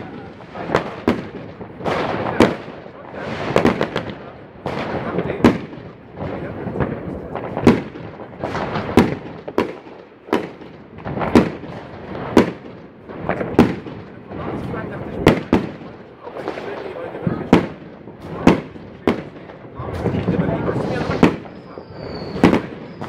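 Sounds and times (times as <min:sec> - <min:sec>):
distant fireworks crackle: 0:00.0 - 0:23.0
fireworks bangs: 0:00.0 - 0:23.0.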